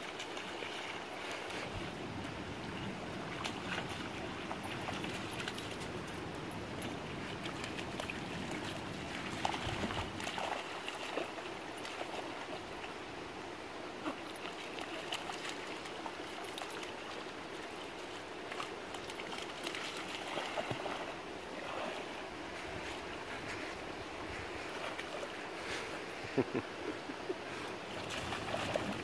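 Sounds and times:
puppy splashing in water: 6.8s - 12.6s, 14.0s - 22.2s, 27.8s - 29.0s.

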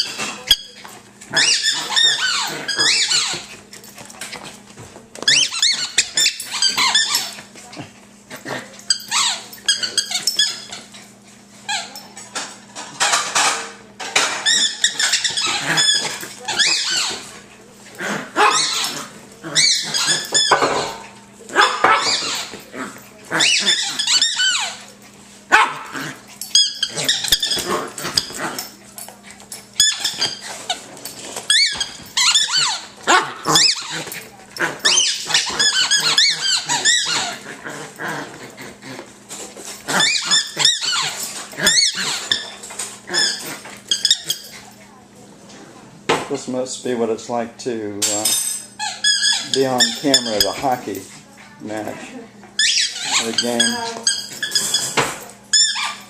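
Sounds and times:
puppy squealing and barking: 0.0s - 3.5s, 5.3s - 7.4s, 8.9s - 10.8s, 14.4s - 17.3s, 18.4s - 20.7s, 21.6s - 22.6s, 23.4s - 24.8s, 31.5s - 34.1s, 34.8s - 37.5s, 39.9s - 44.5s, 48.8s - 50.6s, 52.6s - 56.0s.

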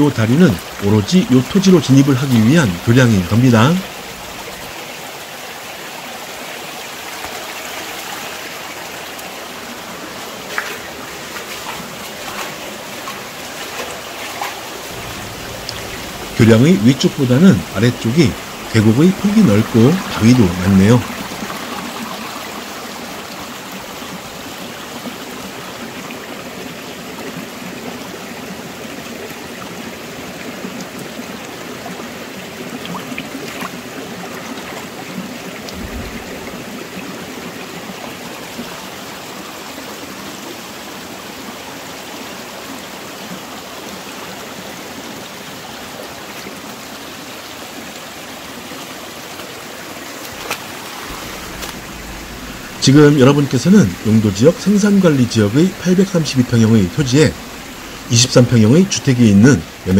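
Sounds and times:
stream rushing over boulders: 0.0s - 59.9s.

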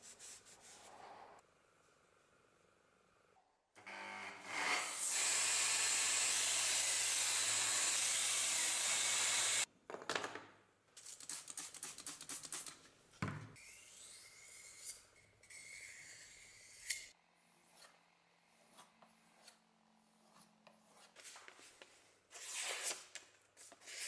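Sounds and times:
belt grinder grinding metal: 4.8s - 9.7s.

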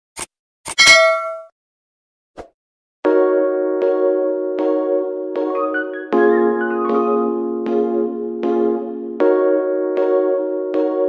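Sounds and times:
bright bell-like ding: 0.8s - 1.5s.

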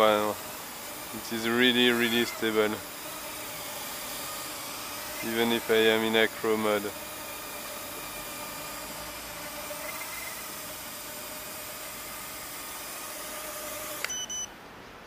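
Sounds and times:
steady hiss: 0.0s - 14.1s
drone motors whining: 0.0s - 14.5s.

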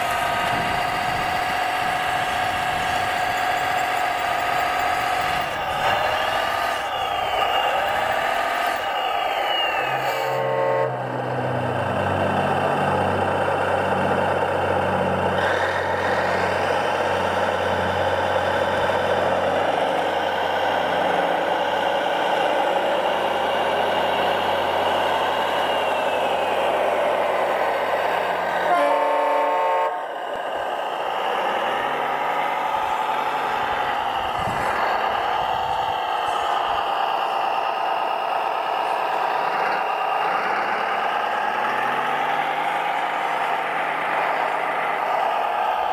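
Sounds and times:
model construction machines running: 0.0s - 45.9s
horn-like tone: 9.8s - 12.0s, 28.6s - 30.1s.

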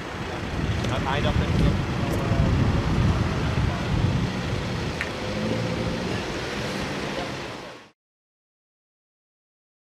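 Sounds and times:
vehicle engines running: 0.0s - 7.9s
wind buffeting microphone: 0.2s - 7.1s.

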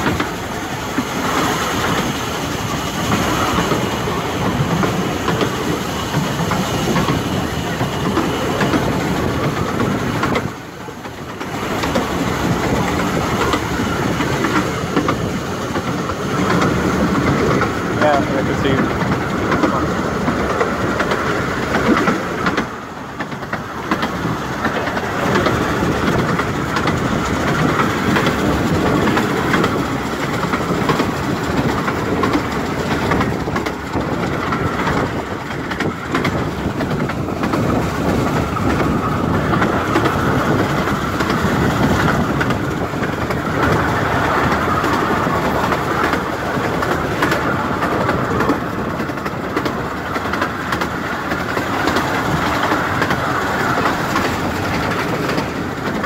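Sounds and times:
train rolling rumble: 0.0s - 56.0s
wheels clicking over rail joints: 0.0s - 56.0s.

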